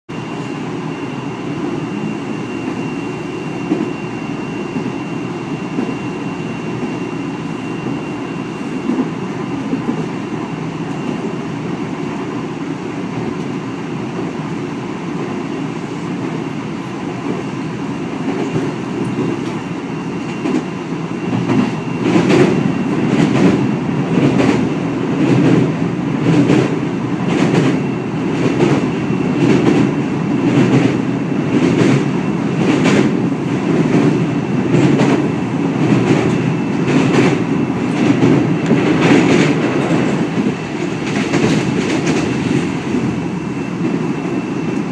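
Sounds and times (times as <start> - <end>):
train wheels rumbling on track: 0.1 - 44.9
rhythmic clacking of wheels: 18.1 - 44.9.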